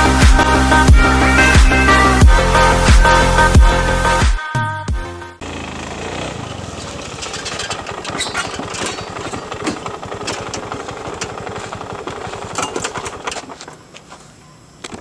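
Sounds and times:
scooter engine idling: 5.4 - 14.4.

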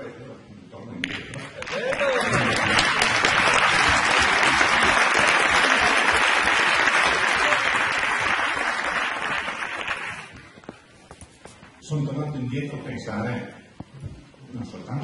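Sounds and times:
audience applauding: 1.4 - 10.5.

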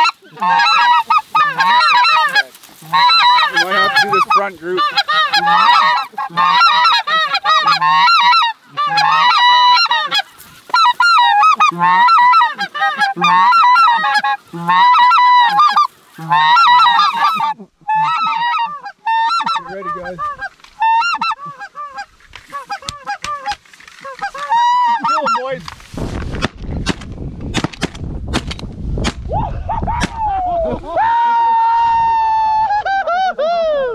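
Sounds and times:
goose calls yodelling chatter: 0.0 - 25.6.

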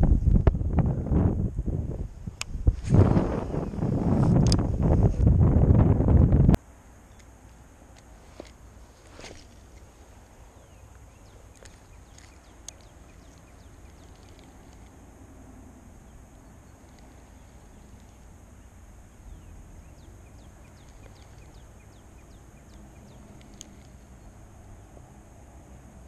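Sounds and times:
wind rumble on microphone: 0.0 - 6.6
sharp click: 4.3 - 4.7
small birds chirping: 8.0 - 15.2, 15.9 - 24.9.

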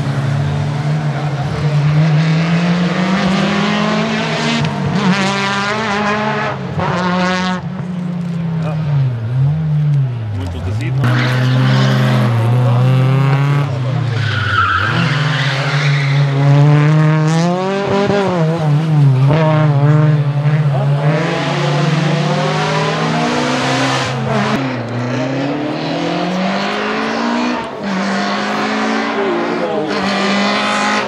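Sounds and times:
rally car engine revving: 0.0 - 31.0
tyre squeal: 14.0 - 16.4.

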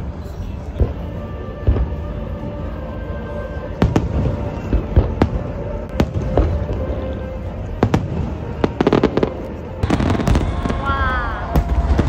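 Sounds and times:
music: 0.0 - 12.0
fireworks crackling: 3.7 - 12.0
fireworks bangs: 3.8 - 7.0, 7.7 - 12.0.

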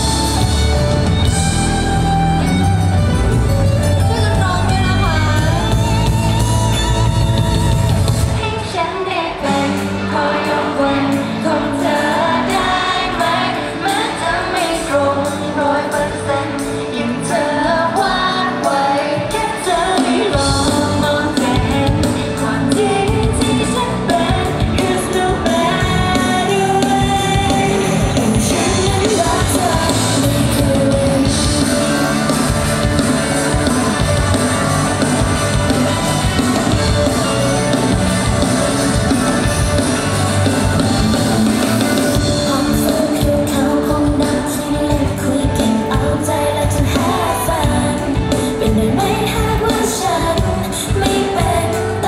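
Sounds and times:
loud backing pop music: 0.0 - 52.0
woman singing: 8.3 - 34.4, 42.0 - 52.0.

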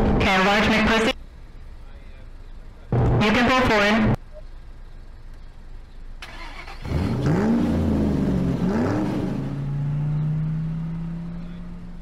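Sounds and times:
car engine starting and revving: 6.2 - 12.0.

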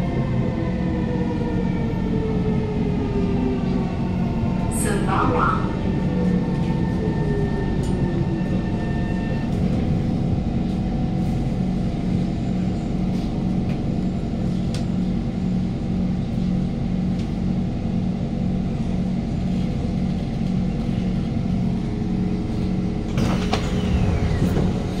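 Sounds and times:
train traction motors whining: 22.0 - 25.0.

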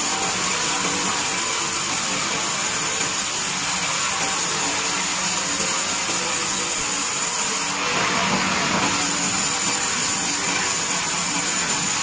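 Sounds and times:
band saw blade cutting timber: 0.0 - 7.8, 8.8 - 12.0
running sawmill machine: 0.0 - 12.0.

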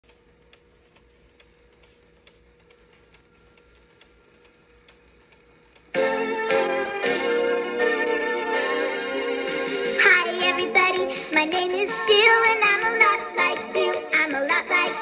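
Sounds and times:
faint regular ticking: 0.0 - 5.9
tape mechanism hum: 0.0 - 15.0
loud music from tape: 6.0 - 15.0.

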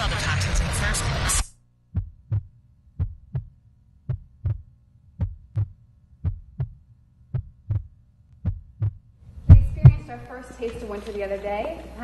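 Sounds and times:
heartbeat thumps: 1.9 - 10.2.

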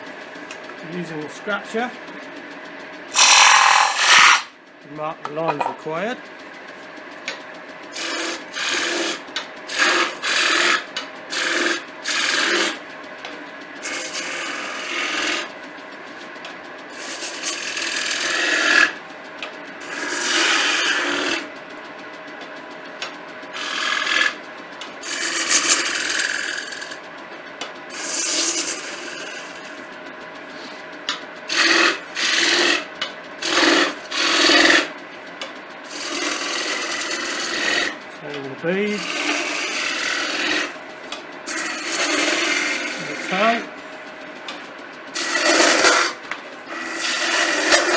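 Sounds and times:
lathe tool cutting wood: 0.5 - 2.0, 3.1 - 6.2, 7.9 - 12.9, 13.8 - 15.6, 16.9 - 19.0, 19.7 - 21.5, 23.5 - 27.0, 27.9 - 29.8, 31.4 - 35.0, 35.8 - 43.8, 44.5 - 47.9.

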